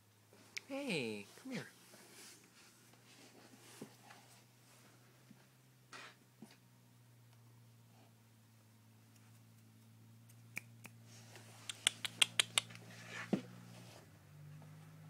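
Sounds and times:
brushing rustle: 1.2 - 5.0, 12.8 - 14.1.

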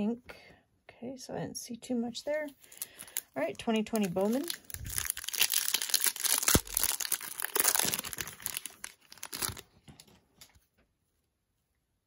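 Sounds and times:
foil wrapper crinkling and tearing: 2.5 - 10.1.

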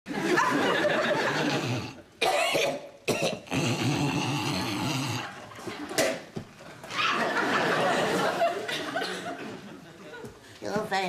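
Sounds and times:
person clearing throat: 1.6 - 5.3
person coughing: 2.2 - 3.8.

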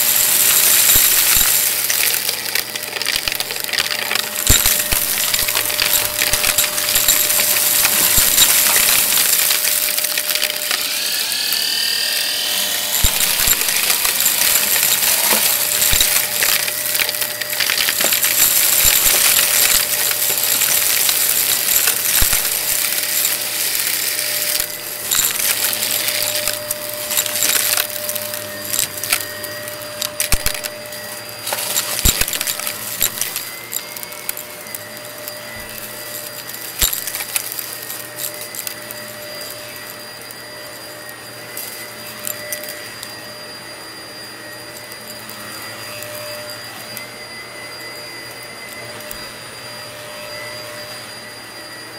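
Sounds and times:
debris clicking through vacuum nozzle: 0.0 - 40.4
vacuum cleaner motor: 0.0 - 51.9.

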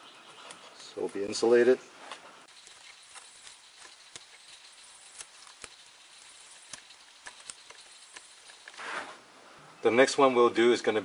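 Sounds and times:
steady low hiss: 0.0 - 11.0
tape wrapping clicks and rustles: 2.1 - 8.8.

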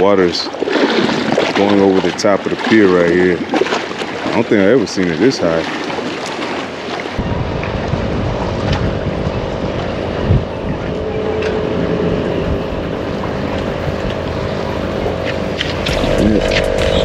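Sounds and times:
wind rumbling on microphone: 0.0 - 17.0
engine droning: 7.2 - 17.0.

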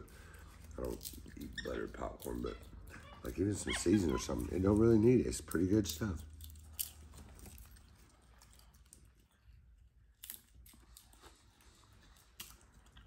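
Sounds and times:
popcorn being chewed: 4.2 - 13.0.

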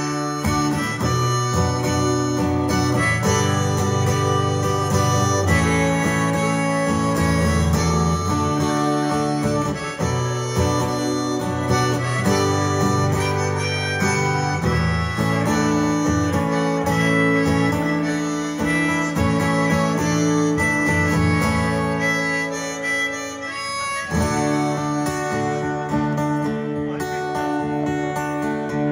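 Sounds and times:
harmonica melody: 0.0 - 28.9
strummed acoustic guitar: 0.0 - 28.9.

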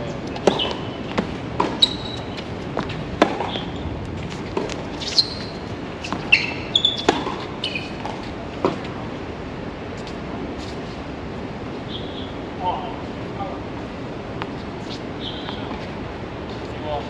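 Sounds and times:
shoes squeaking on court: 0.3 - 9.0, 14.4 - 16.8
tennis ball bouncing: 0.3 - 9.0
tennis racket hitting ball: 0.4 - 8.9.

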